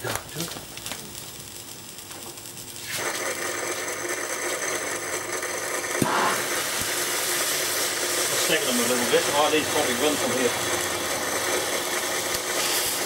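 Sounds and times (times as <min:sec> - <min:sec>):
fuse fizzing and crackling: 0:00.0 - 0:13.0
sharp crack: 0:04.4 - 0:13.0.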